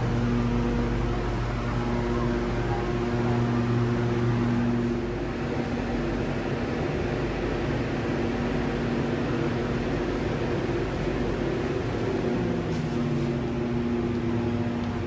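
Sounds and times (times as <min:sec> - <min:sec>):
electric train humming: 0:00.0 - 0:15.0.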